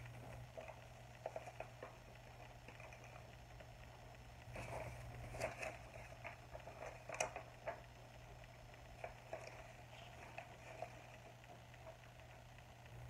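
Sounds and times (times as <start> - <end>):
steady low hum: 0.0 - 13.0
paper rustling and crinkling: 4.4 - 8.1, 8.9 - 12.0.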